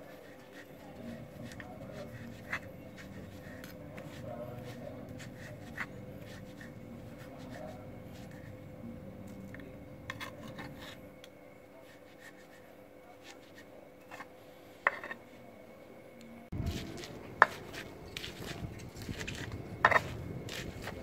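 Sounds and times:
stone pestle grinding in mortar: 0:00.0 - 0:08.5, 0:09.5 - 0:11.0, 0:14.9 - 0:15.2, 0:16.6 - 0:21.0
vegetables rustling in sauce: 0:00.0 - 0:08.5, 0:16.6 - 0:21.0
metal spoon scraping stone: 0:10.1 - 0:11.0, 0:14.0 - 0:14.3, 0:14.9 - 0:15.2, 0:17.0 - 0:21.0.

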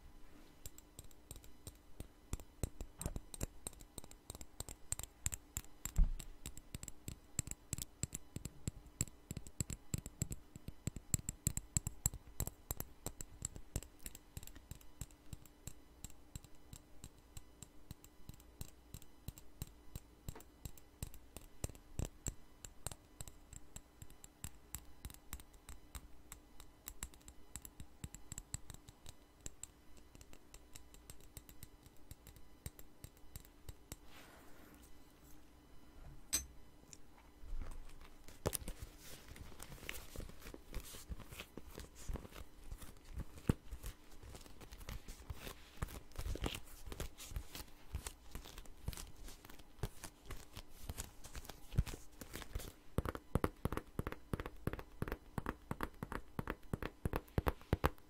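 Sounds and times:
fingernails tapping on plastic tube: 0:53.0 - 0:58.0.

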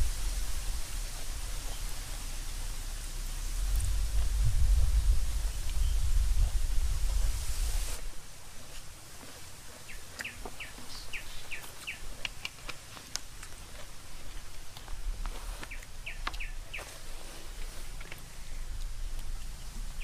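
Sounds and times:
bird chirping: 0:05.3 - 0:06.6, 0:09.8 - 0:12.2, 0:15.6 - 0:17.0.

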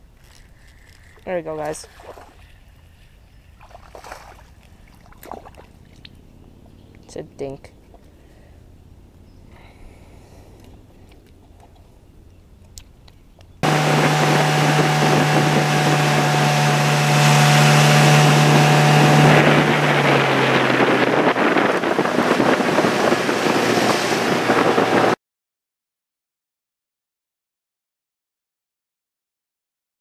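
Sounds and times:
water rushing past hull: 0:01.2 - 0:02.8, 0:03.5 - 0:06.8, 0:13.6 - 0:25.2
outboard motor running: 0:13.6 - 0:25.2
wind buffeting the microphone: 0:13.6 - 0:25.2.

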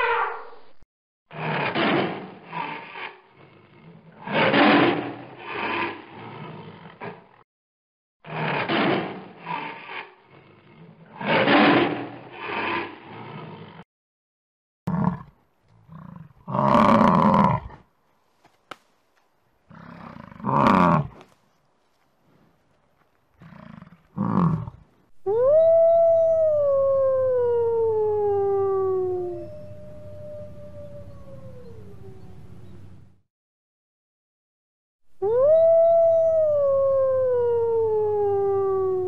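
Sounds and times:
tiger growling and roaring: 0:01.3 - 0:07.4, 0:08.2 - 0:13.8, 0:14.9 - 0:17.9, 0:19.7 - 0:21.3, 0:23.4 - 0:24.9
wolf howling: 0:25.2 - 0:33.0, 0:35.2 - 0:39.0.

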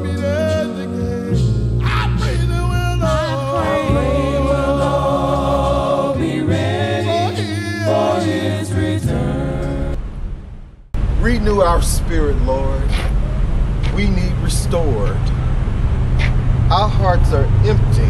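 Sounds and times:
group singing a cappella hymn: 0:00.0 - 0:10.0.

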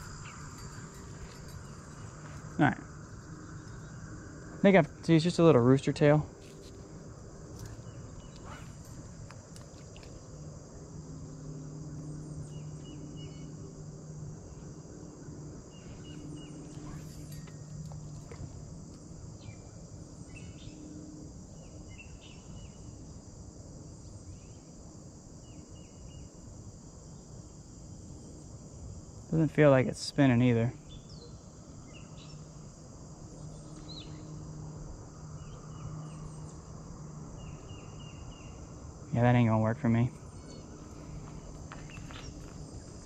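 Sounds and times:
low hum: 0:00.0 - 0:21.9
insects chorus: 0:00.0 - 0:43.0.

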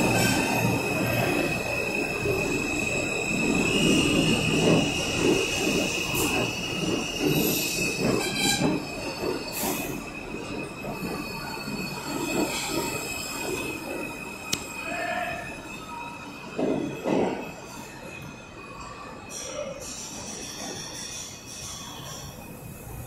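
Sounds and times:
train wheels squealing: 0:00.0 - 0:23.0
wheels clattering on rails: 0:00.1 - 0:14.7.

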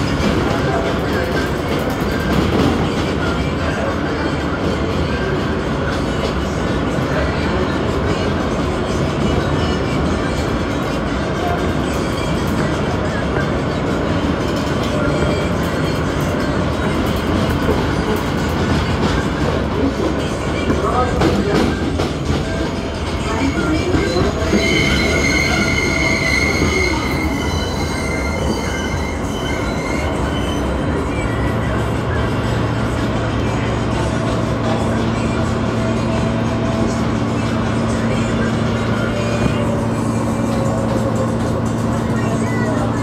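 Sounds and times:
train rumble on rails: 0:00.0 - 0:43.0
high-pitched wheel squeal: 0:23.3 - 0:31.0.

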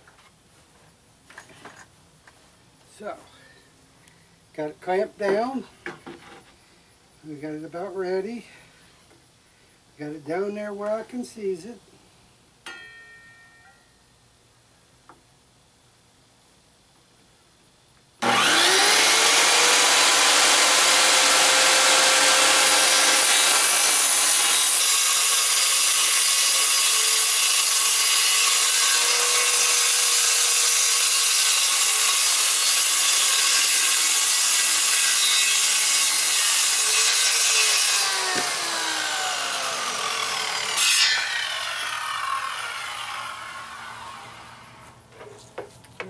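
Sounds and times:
circular saw cutting plywood: 0:18.2 - 0:45.0.

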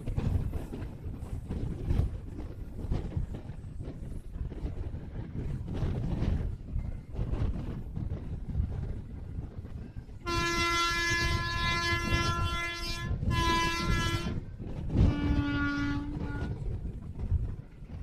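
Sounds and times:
train rumbling on track: 0:00.0 - 0:18.0
train horn blasts: 0:10.2 - 0:16.8.

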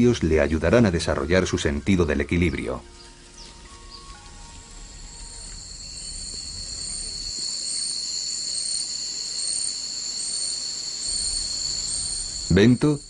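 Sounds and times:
insects calling shrilly: 0:00.0 - 0:13.0
pulsing high insect note: 0:03.0 - 0:13.0.

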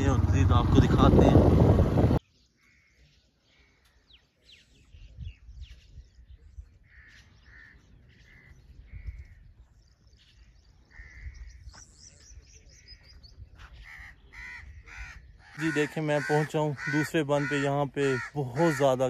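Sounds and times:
crows cawing: 0:02.6 - 0:04.1, 0:06.8 - 0:09.6, 0:10.8 - 0:11.7, 0:13.6 - 0:19.0.

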